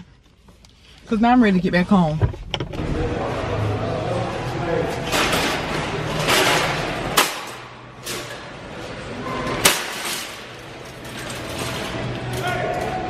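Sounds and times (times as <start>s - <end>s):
wire shopping carts rattling: 5.0s - 13.0s.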